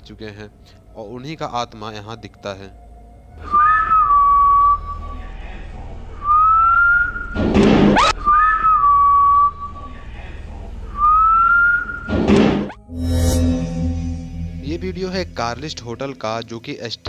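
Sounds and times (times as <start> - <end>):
eerie whistled tune: 0.4 - 7.4, 8.0 - 12.3.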